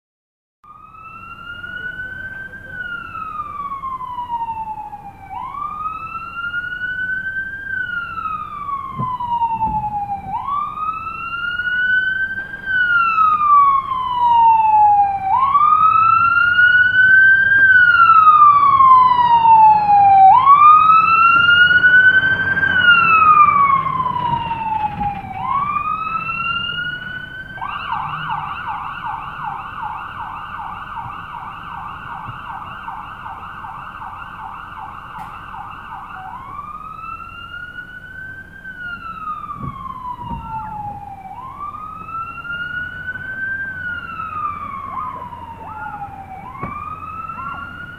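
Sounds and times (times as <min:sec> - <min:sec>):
fire engine siren: 0:00.6 - 0:47.9.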